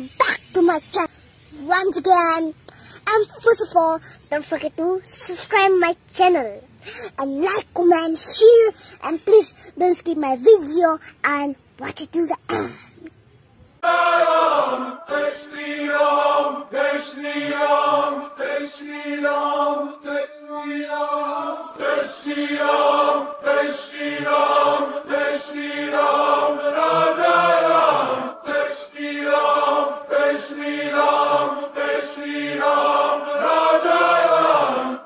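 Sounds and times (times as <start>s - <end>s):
male voices chanting in chorus: 13.8s - 35.0s.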